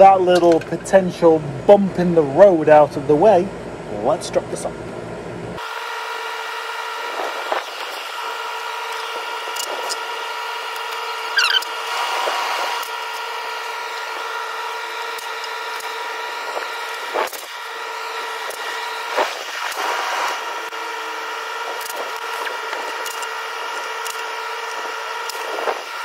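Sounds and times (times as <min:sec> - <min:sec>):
steady background hum: 0:00.0 - 0:26.0
cordless power tool whirring: 0:05.6 - 0:26.0.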